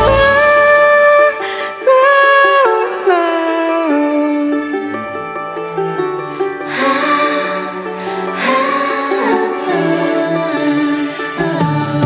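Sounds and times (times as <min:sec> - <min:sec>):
person singing pop ballad: 0:00.0 - 0:04.6, 0:08.4 - 0:12.0
instrumental backing: 0:00.0 - 0:12.0.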